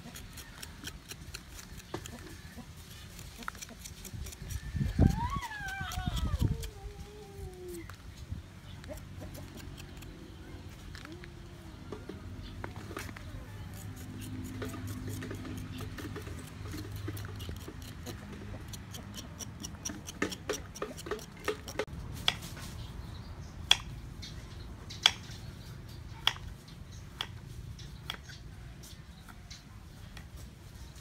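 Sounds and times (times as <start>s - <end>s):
knife scraping ginger skin: 0.0s - 6.9s, 13.6s - 22.4s.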